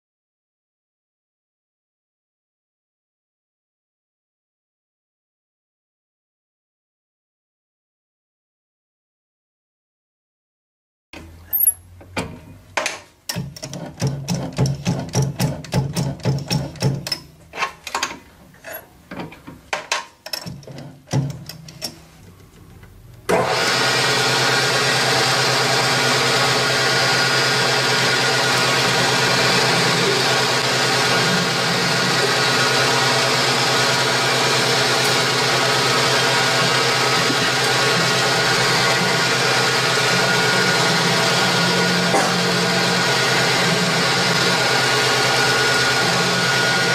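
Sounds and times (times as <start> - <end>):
lathe cutter clicking and knocking: 12.2 - 17.3, 25.0 - 46.9
lathe machine hum: 23.3 - 46.9.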